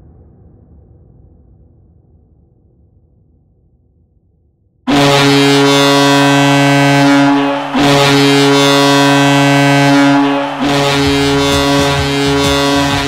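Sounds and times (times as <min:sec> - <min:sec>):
deep multi-tone goal horn: 0:04.9 - 0:13.0.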